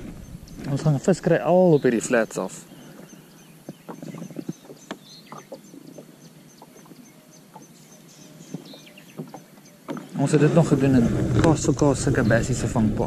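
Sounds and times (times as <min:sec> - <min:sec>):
light knocks and clicks: 0:08.5 - 0:10.1.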